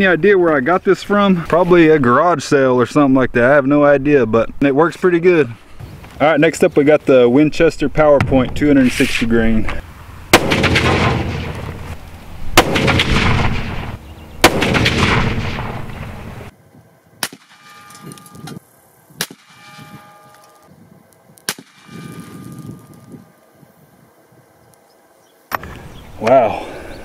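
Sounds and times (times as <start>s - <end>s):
rifle shots with echo: 10.3s - 12.0s, 12.6s - 16.5s, 17.2s - 18.1s, 19.2s - 20.1s, 21.5s - 22.4s.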